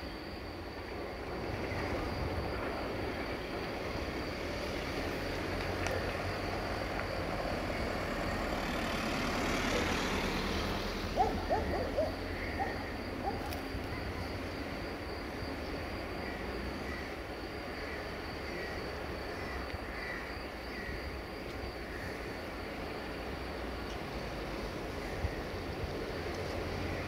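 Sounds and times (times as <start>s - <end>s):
wind-like hiss: 0.0s - 27.0s
bird hooting calls: 11.1s - 13.6s.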